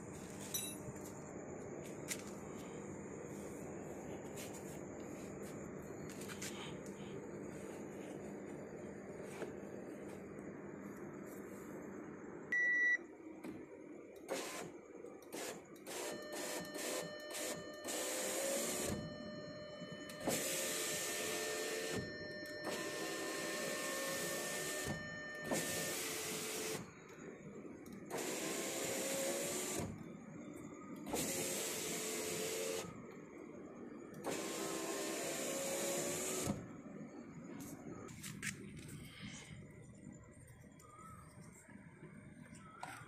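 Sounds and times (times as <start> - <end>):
power window motor whining: 15.3 - 26.8, 28.1 - 30.0, 31.0 - 32.9, 34.2 - 36.7.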